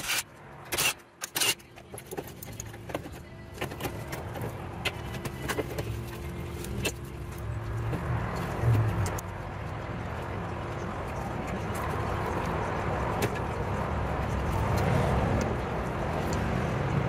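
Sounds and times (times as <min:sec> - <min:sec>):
cordless driver whirring: 0:00.0 - 0:01.6.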